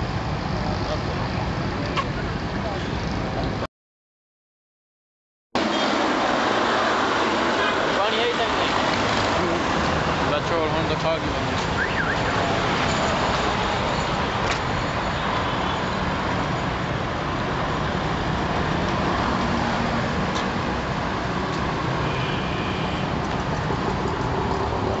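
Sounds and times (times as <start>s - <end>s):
road traffic passing: 0.0s - 3.7s, 5.6s - 25.0s.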